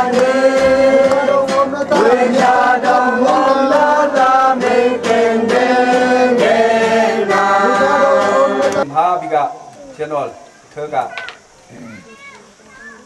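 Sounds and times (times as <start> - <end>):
congregation singing slow song: 0.0 - 8.9.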